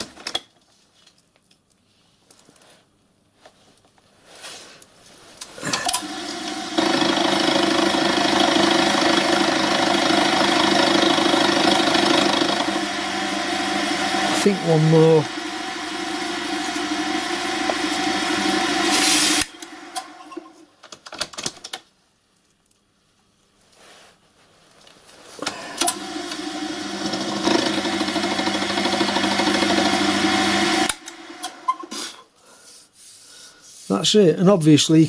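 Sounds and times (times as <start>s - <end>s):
milling machine humming: 5.7s - 20.6s, 25.4s - 31.9s.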